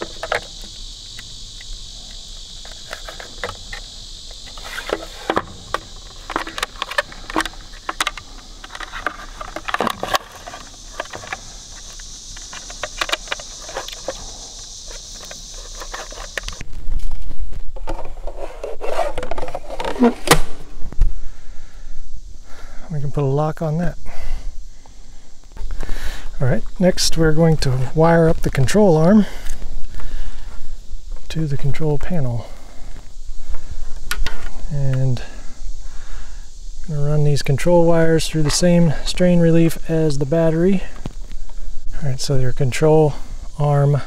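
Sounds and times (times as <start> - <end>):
high insect buzz: 0.0 - 44.0
plastic cover scraping: 15.1 - 20.4.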